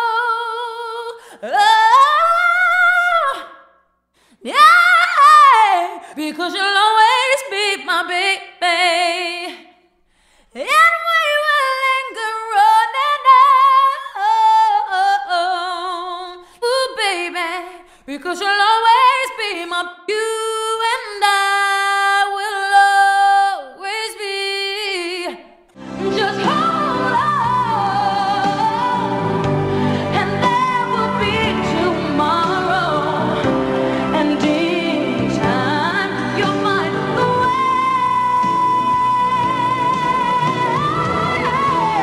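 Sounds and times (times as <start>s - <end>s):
woman singing solo: 25.9s - 42.0s.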